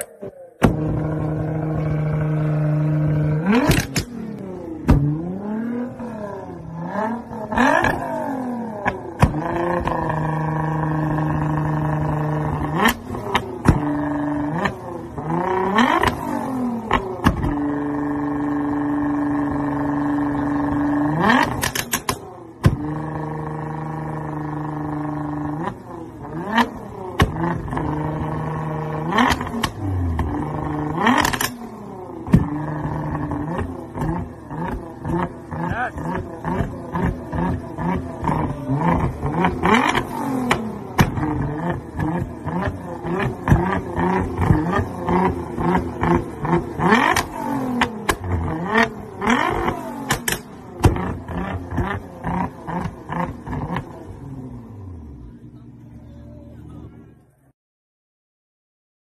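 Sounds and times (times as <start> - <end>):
car engine revving: 0.0 - 57.4
exhaust pops and cracks: 3.5 - 5.2, 8.8 - 9.5, 16.9 - 17.6, 21.4 - 22.9, 29.2 - 30.4, 31.1 - 31.6, 32.2 - 32.7, 39.0 - 44.9, 49.5 - 52.0.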